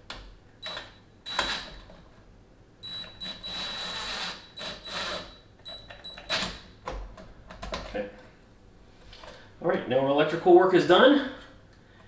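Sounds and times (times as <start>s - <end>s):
cordless drill whining: 3.3s - 5.3s.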